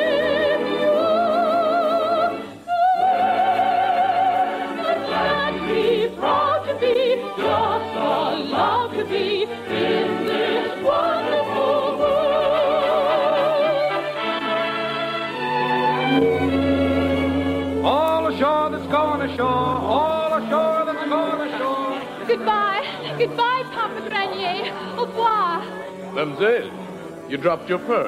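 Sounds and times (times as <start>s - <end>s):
soprano singing: 0.0s - 27.9s
orchestra: 0.0s - 28.0s.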